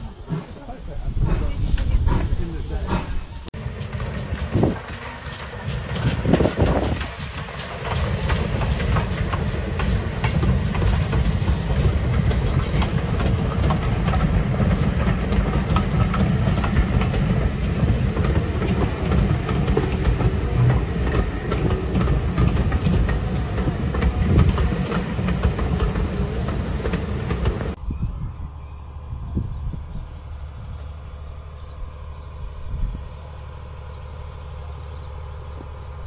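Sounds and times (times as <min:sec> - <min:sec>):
low train rumble: 0:00.0 - 0:36.0
wheels clicking over rail joints: 0:01.7 - 0:27.8.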